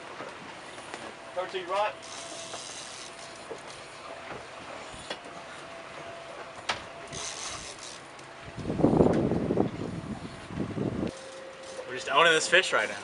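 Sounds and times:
fishing reel gear whine: 0.6s - 13.0s
fishing reel clicks: 2.0s - 3.4s, 7.1s - 8.0s.

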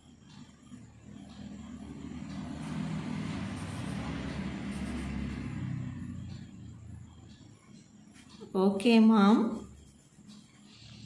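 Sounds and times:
motor vehicle passing by: 0.6s - 8.4s.

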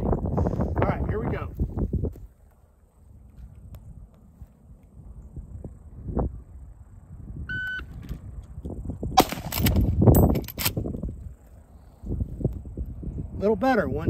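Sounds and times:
electronic timer beep: 7.5s - 7.9s
rifle shot: 9.2s - 10.0s.

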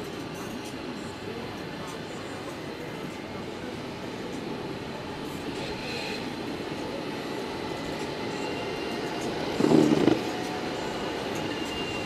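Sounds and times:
skateboard wheels rolling on asphalt: 9.6s - 10.3s.

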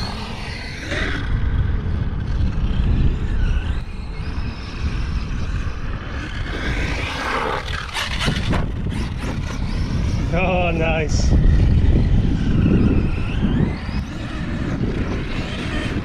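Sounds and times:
electric motor whining: 0.0s - 16.0s
wind buffeting microphone: 0.0s - 16.0s
tyres on dirt: 5.8s - 16.0s.

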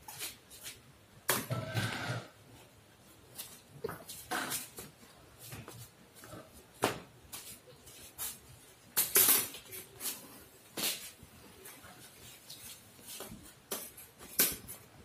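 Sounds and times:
slippered footsteps scuffing: 3.2s - 8.6s, 9.5s - 14.4s
plastic toys clattering on tiles: 9.0s - 10.2s, 13.7s - 14.9s.

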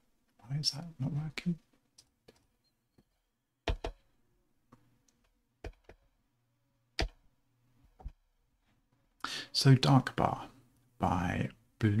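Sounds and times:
keyboard and mouse clicks: 7.0s - 7.2s.

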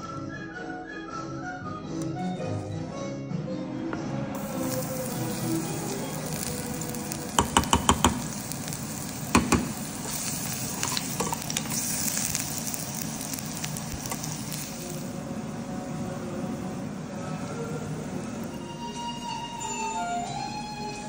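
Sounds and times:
garlic sizzling in hot oil: 4.4s - 15.8s
metal spoon knocking on pan: 7.4s - 8.4s, 9.4s - 9.8s.

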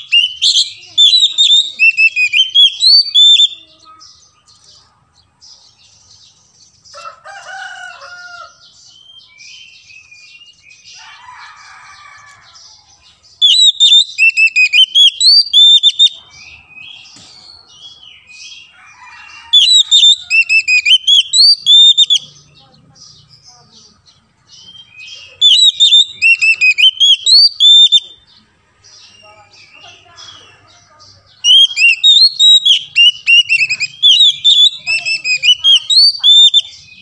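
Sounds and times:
bird whistling song: 0.0s - 3.7s, 8.9s - 10.9s, 13.3s - 18.6s, 19.5s - 22.4s, 24.5s - 28.3s, 31.4s - 37.0s
bird chattering and warbling: 0.0s - 37.0s.

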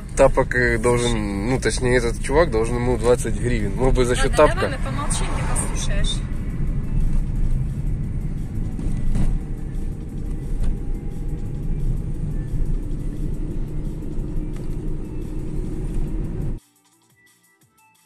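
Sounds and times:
low rumble of tyres and road: 0.0s - 16.6s.

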